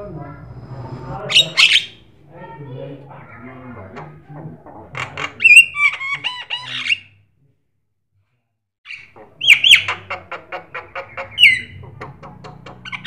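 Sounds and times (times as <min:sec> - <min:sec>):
myna bird calling and whistling: 0:01.2 - 0:02.1, 0:04.8 - 0:07.1, 0:08.9 - 0:13.0.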